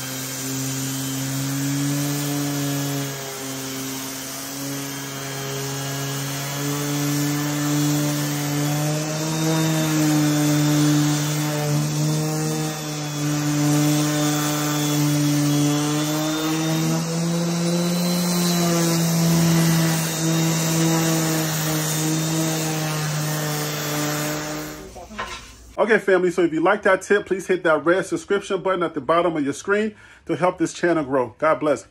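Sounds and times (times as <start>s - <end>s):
sander motor hum: 0.0s - 25.1s
sanding disc scrubbing: 0.0s - 25.8s.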